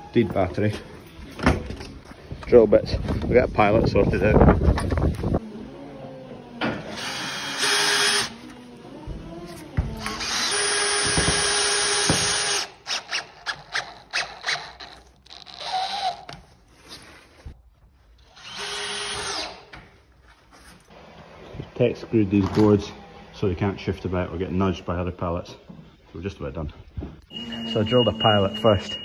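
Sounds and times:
cordless drill drilling: 0:06.9 - 0:08.4, 0:10.0 - 0:16.3, 0:18.3 - 0:19.7
drill driving screws into steel: 0:06.9 - 0:08.4, 0:10.0 - 0:16.3.

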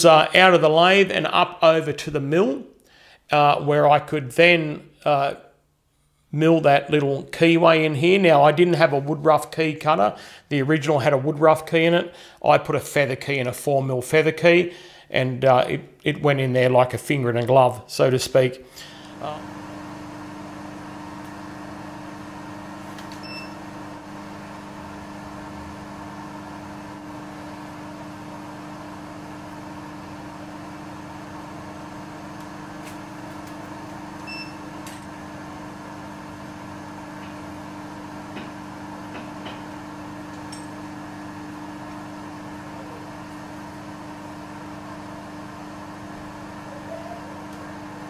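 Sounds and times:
milling machine humming: 0:18.8 - 0:48.0.

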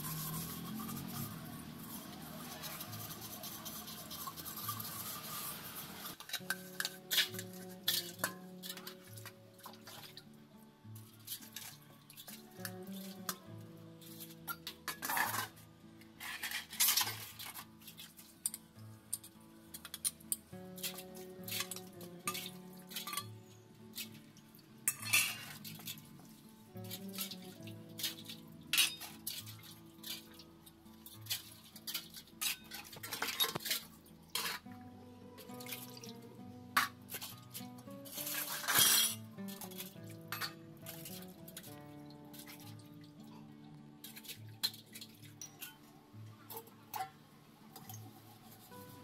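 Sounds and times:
brass vessels scrubbed and clinking: 0:00.0 - 0:09.0, 0:14.1 - 0:15.6, 0:16.2 - 0:18.6, 0:24.8 - 0:26.0, 0:28.0 - 0:30.4, 0:31.3 - 0:34.7, 0:36.8 - 0:41.3
hands scrubbing vessels with mud: 0:00.0 - 0:10.1
background music: 0:00.0 - 0:49.0
metal plate clinking on vessels: 0:18.4 - 0:23.3, 0:24.8 - 0:25.6, 0:28.7 - 0:29.2, 0:38.3 - 0:41.0.

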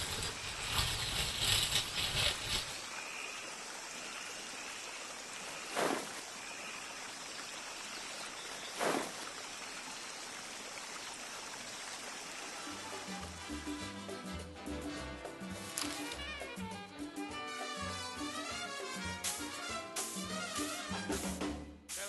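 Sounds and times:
water swishes: 0:00.0 - 0:13.6
stream water flowing: 0:00.0 - 0:16.6.

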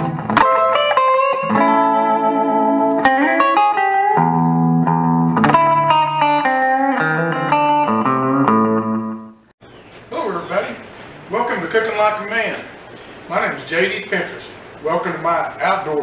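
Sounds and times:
guitar with effects playing notes: 0:00.0 - 0:09.5.

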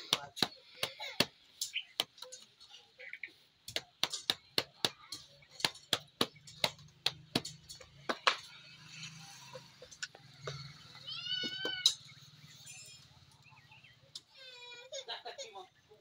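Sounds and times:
hand slapping dough: 0:03.7 - 0:07.4.

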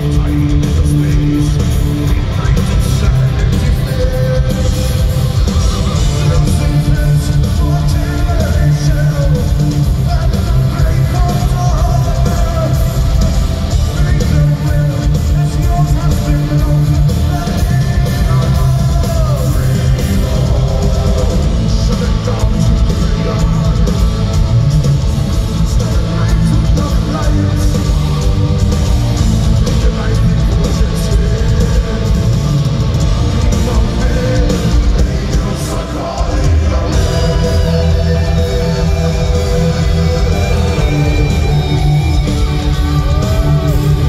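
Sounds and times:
person singing: 0:00.0 - 0:24.1, 0:33.2 - 0:44.0
heavy metal band playing live: 0:00.0 - 0:44.0.

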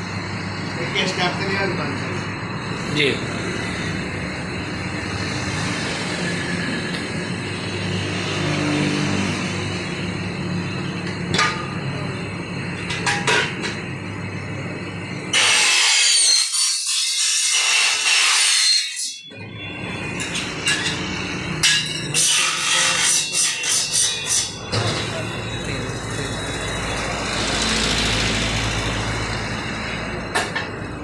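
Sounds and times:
workshop clatter and clicks: 0:10.8 - 0:14.0, 0:15.3 - 0:31.0
saw screeching through aluminium: 0:15.3 - 0:30.2.

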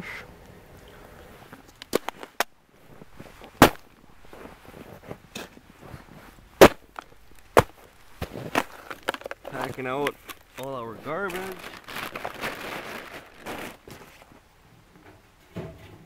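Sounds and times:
boot crushing metal cans: 0:03.4 - 0:04.4, 0:06.6 - 0:10.6.

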